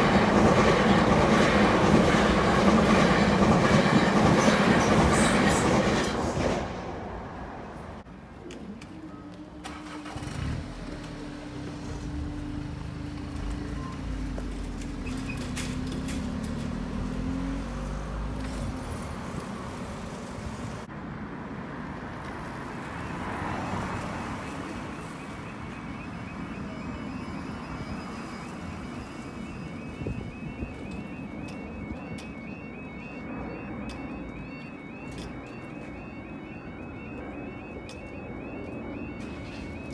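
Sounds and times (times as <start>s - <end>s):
car engines pulling away: 9.6s - 20.9s
warbling crossing alarm: 23.0s - 39.9s.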